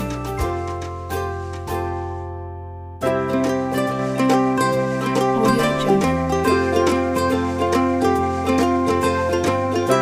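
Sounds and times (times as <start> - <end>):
plucked strings tune over beat: 3.1 - 10.0.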